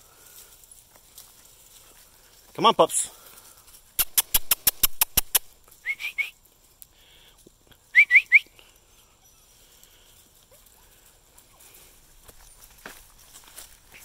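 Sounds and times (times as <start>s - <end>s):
sharp clicks: 4.0s - 5.5s
person whistling: 5.8s - 6.3s, 7.9s - 8.5s.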